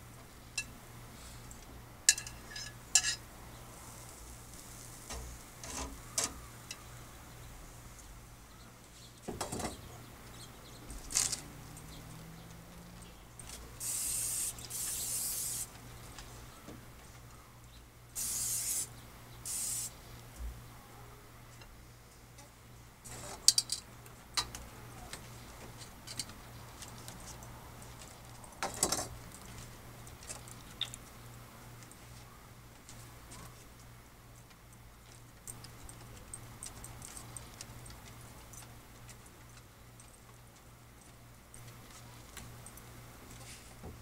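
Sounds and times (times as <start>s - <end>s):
metal clinks of tongs and grate: 2.1s - 3.2s
aerosol spray hissing: 13.8s - 15.7s, 18.2s - 18.9s, 19.5s - 20.0s.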